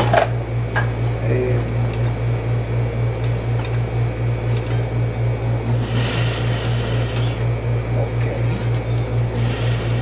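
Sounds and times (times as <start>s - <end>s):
sewing machine stitching: 5.8s - 7.4s, 9.4s - 10.0s.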